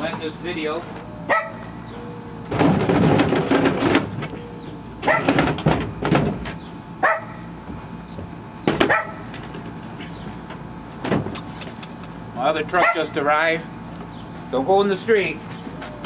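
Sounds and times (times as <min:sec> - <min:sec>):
dog barking: 0:01.3 - 0:01.7, 0:05.0 - 0:05.4, 0:07.0 - 0:07.4, 0:08.9 - 0:09.3, 0:12.8 - 0:13.1.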